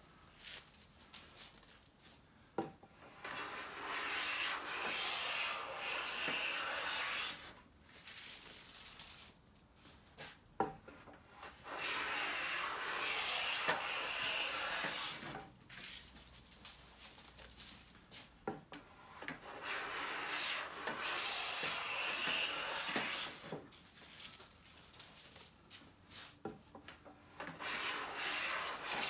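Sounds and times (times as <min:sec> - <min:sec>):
hand plane shaving wood: 0:03.2 - 0:07.5, 0:11.6 - 0:15.4, 0:19.3 - 0:23.6, 0:27.4 - 0:29.0.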